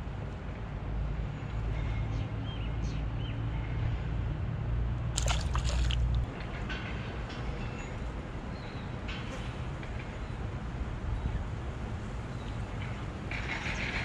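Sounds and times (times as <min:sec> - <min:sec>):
water splashing: 0:05.2 - 0:06.3.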